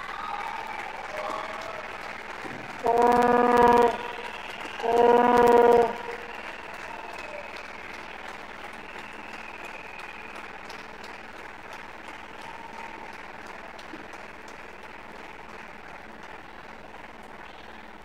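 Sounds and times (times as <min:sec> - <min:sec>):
spectators applauding: 0:00.0 - 0:18.0
loud buzzing horn: 0:02.4 - 0:07.6.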